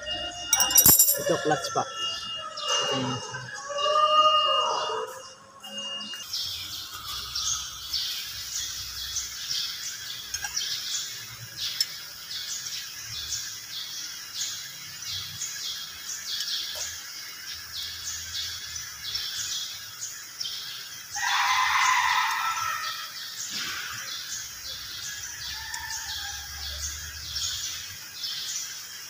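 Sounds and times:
small bird chirping: 5.7 - 20.9.

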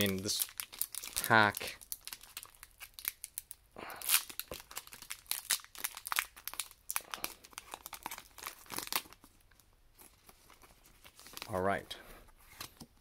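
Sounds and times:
foil wrapper crinkling: 0.0 - 9.3.

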